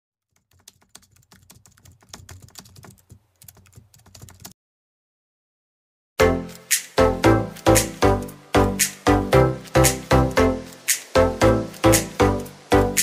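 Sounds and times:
music: 6.2 - 13.0.

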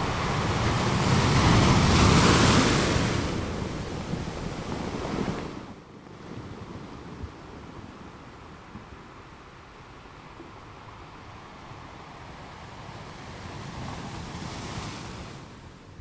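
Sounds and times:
sea wave rushing: 0.0 - 5.8.

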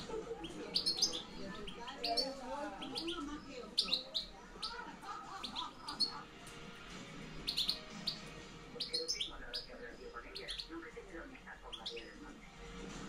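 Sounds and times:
goldfinch twittering: 0.4 - 6.5, 7.4 - 10.8, 11.5 - 12.2.

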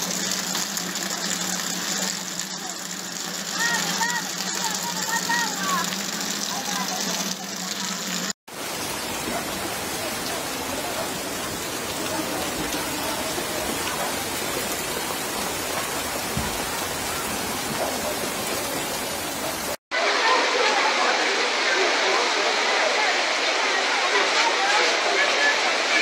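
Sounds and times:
heavy rain hissing on street: 0.0 - 26.0.

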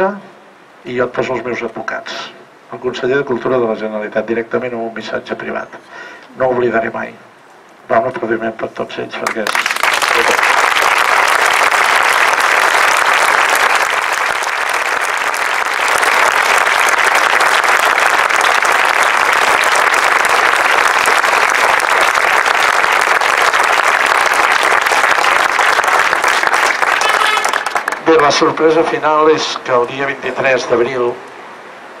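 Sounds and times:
crowd applauding: 9.2 - 28.6.

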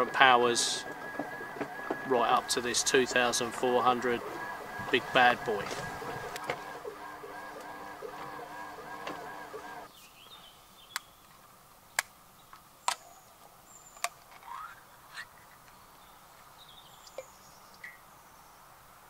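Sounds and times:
electric motor humming: 0.0 - 9.9
birds chirping: 0.0 - 15.1, 15.7 - 18.7.

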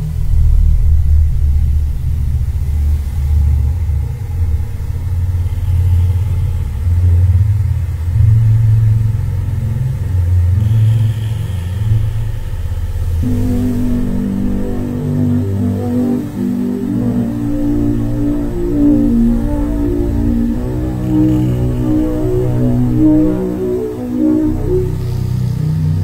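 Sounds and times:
deep low rumbling drone: 0.0 - 26.0
eerie low music notes: 0.0 - 26.0.

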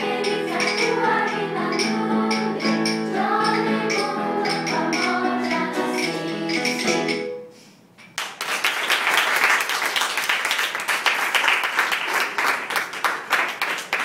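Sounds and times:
children's choir singing: 0.0 - 7.4
audience clapping: 8.2 - 14.0.

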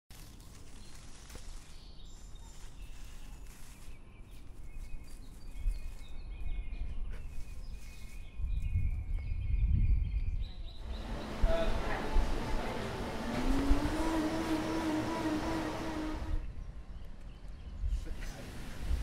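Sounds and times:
small birds chirping: 0.2 - 19.0.

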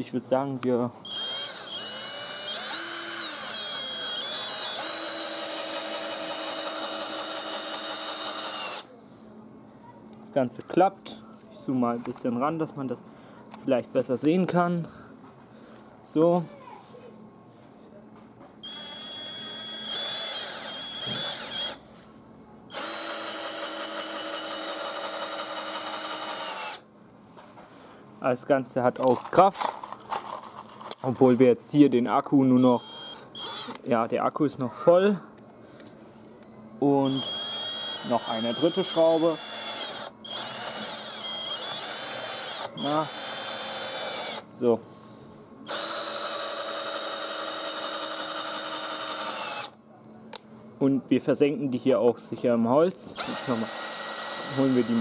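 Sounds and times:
cordless drill driving screw: 1.1 - 8.9, 18.6 - 21.8, 22.7 - 26.8, 32.6 - 33.8, 37.1 - 44.4, 45.7 - 49.8, 53.2 - 55.0.

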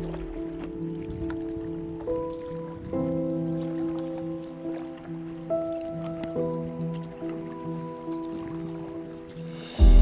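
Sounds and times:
soft sustained music notes: 0.0 - 10.0
loud music with deep bass: 9.8 - 10.0.

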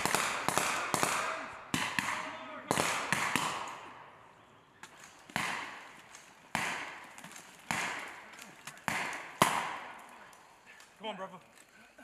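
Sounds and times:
rifle shots echoing: 0.0 - 4.1, 5.0 - 10.4.

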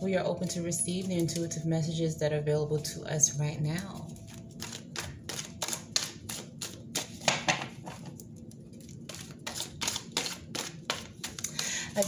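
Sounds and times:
cards being shuffled: 4.2 - 11.6.

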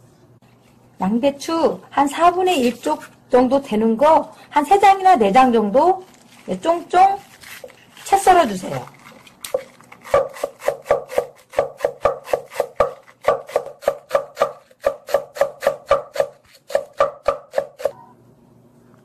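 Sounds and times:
knife chopping cabbage on wooden board: 9.5 - 18.0.

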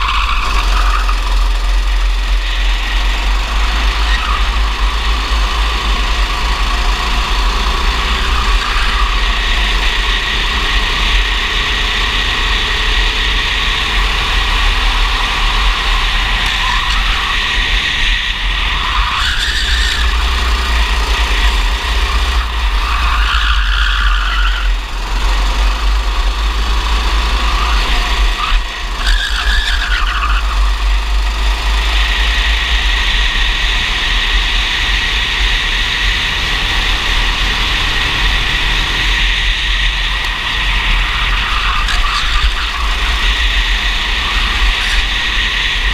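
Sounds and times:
kart engine revving: 0.0 - 45.9.

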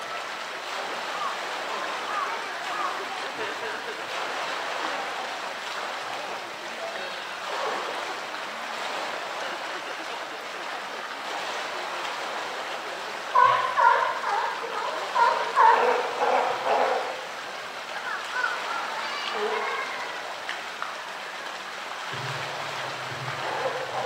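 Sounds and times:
people talking loudly: 0.0 - 8.6, 13.3 - 21.1
water rushing and lapping: 0.0 - 24.0.

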